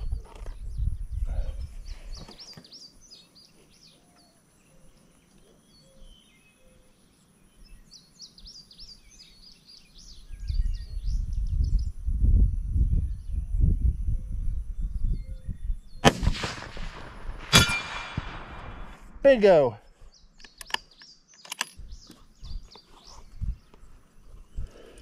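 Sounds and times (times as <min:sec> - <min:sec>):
wind gusting on microphone: 0:00.0 - 0:02.3, 0:10.1 - 0:20.2, 0:21.8 - 0:25.0
songbirds chirping: 0:00.0 - 0:25.0.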